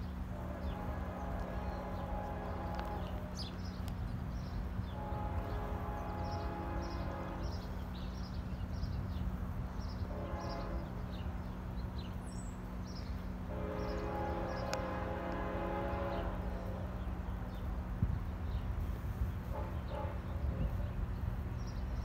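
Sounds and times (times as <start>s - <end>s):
distant train horn blasts: 0.0s - 8.4s, 9.8s - 11.6s, 13.1s - 21.2s
birds chirping: 0.6s - 15.1s.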